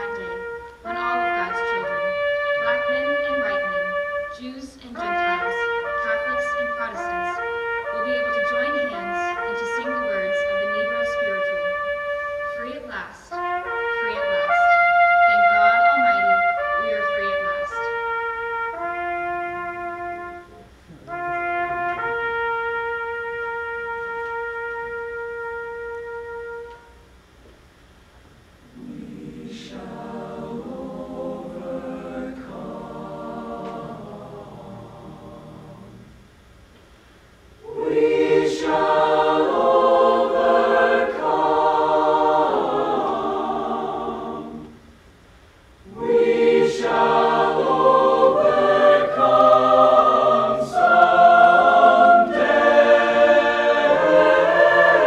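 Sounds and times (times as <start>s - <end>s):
softer lower voices: 0.0s - 11.8s, 12.5s - 18.1s, 28.4s - 55.0s
choir singing in harmony: 0.0s - 20.5s, 28.6s - 36.2s, 37.6s - 44.9s, 45.8s - 55.0s
woman singing slow melody: 2.6s - 11.5s.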